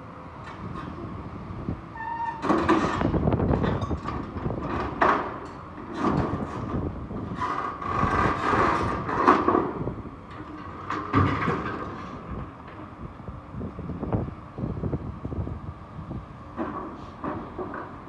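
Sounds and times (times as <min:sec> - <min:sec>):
steel creaking and screeching: 0:02.0 - 0:03.1.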